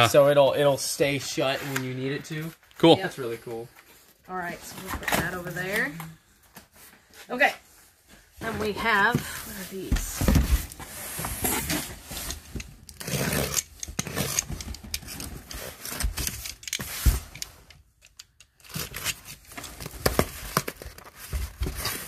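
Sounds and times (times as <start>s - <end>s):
cardboard boxes scraping together: 8.5s - 14.4s
box cutter slicing packing tape: 12.9s - 14.6s.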